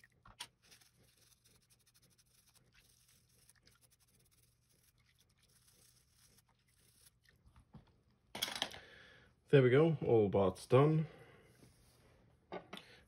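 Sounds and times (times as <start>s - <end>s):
toothbrush scrubbing plastic in water: 0.0s - 7.5s.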